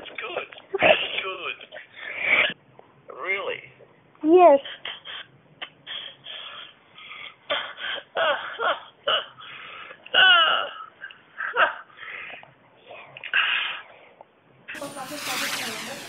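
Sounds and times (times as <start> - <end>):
man sobbing: 10.0 - 11.9.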